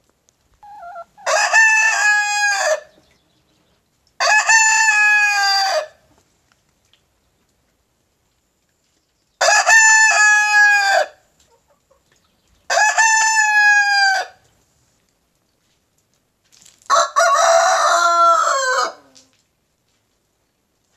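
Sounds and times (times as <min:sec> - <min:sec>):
rooster crowing: 0:16.9 - 0:19.1.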